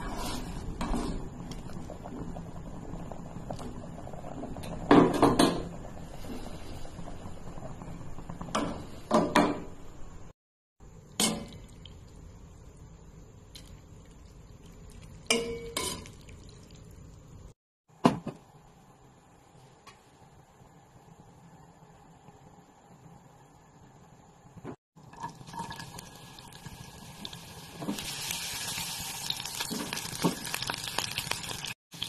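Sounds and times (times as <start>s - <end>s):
water boiling in a pot: 0.3s - 9.2s, 10.8s - 17.6s, 20.2s - 32.0s
metal spoon clanking on pot: 15.3s - 16.2s.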